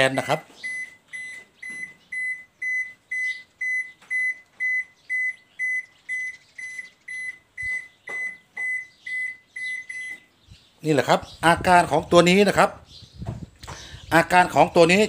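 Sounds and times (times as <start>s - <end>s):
washing machine alarm beeps: 0.6s - 10.3s.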